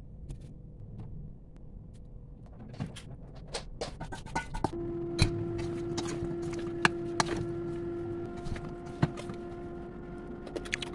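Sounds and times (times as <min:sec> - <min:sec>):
appliance humming: 0:04.7 - 0:10.9.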